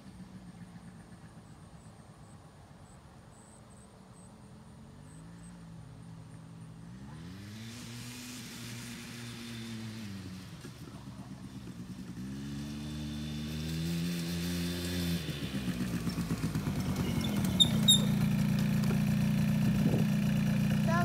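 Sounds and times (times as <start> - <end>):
small atv engine: 0.0 - 3.2, 3.9 - 21.0
short high squeaks: 16.9 - 18.4.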